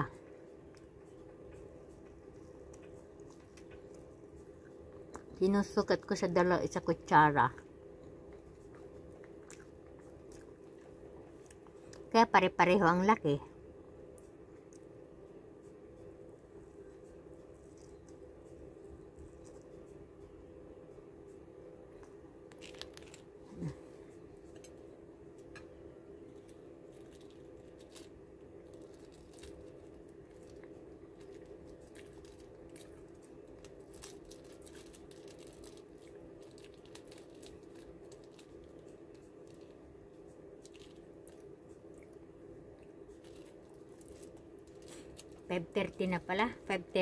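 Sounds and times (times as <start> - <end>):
steady low hum: 0.0 - 47.0
plastic packet crinkling: 22.5 - 23.4, 26.3 - 39.8, 40.6 - 41.5, 43.1 - 46.0.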